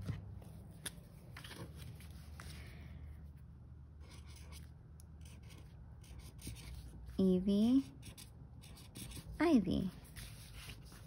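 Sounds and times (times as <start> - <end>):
pen scratching on paper: 4.0 - 7.0, 7.8 - 11.0.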